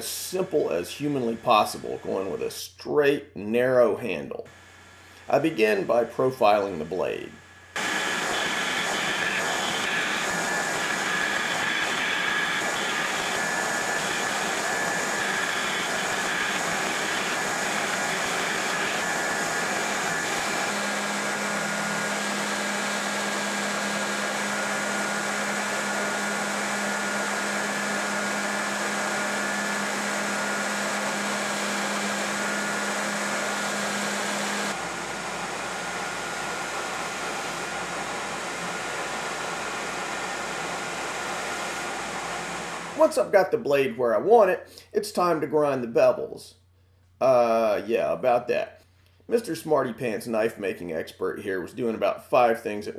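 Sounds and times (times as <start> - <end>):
belt grinder grinding steel: 7.8 - 25.8.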